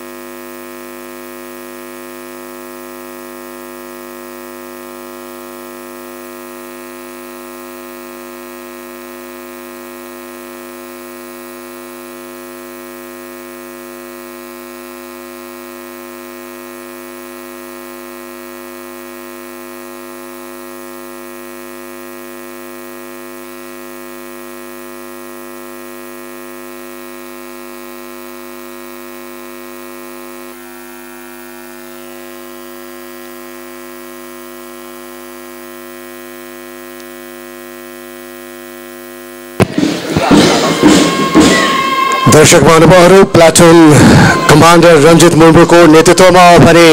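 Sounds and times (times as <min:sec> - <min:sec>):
electrical mains hum: 0:00.0 - 0:46.9.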